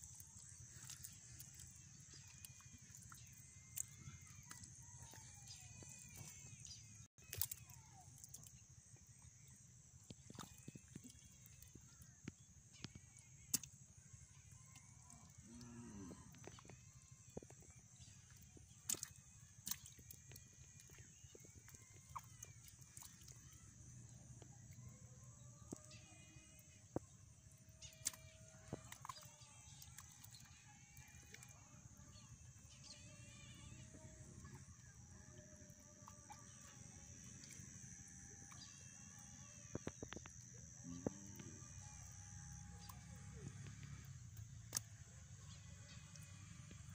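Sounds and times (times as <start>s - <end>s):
bowl scooping watery mud: 16.4s - 24.8s, 27.8s - 33.0s.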